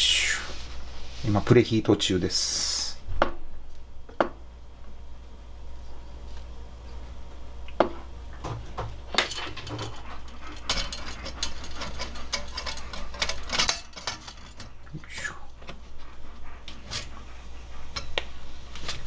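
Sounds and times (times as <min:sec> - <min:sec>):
metal parts clinking: 0:10.6 - 0:14.8.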